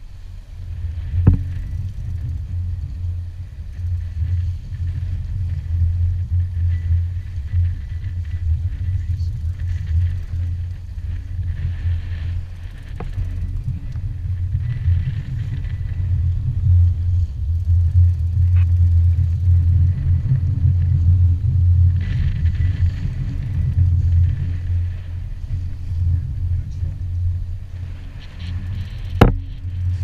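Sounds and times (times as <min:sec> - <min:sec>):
outboard motor running: 0:00.0 - 0:30.0.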